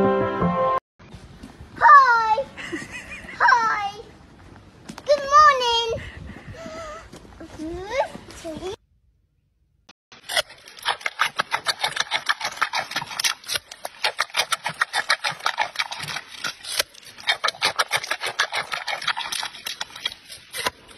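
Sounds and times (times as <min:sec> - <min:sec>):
panda crunching carrot: 0:10.1 - 0:20.9.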